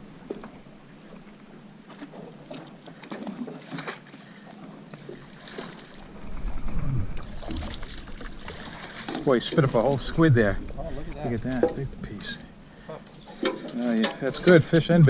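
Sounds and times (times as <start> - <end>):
fish splashing in water: 3.2 - 10.0
low rumble: 6.0 - 12.7.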